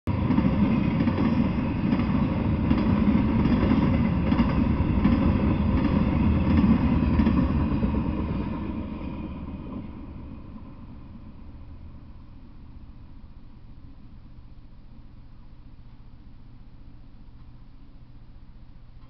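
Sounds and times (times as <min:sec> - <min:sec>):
rail clicks: 0:00.1 - 0:10.1
steel wheels rumbling on rail: 0:00.1 - 0:12.8.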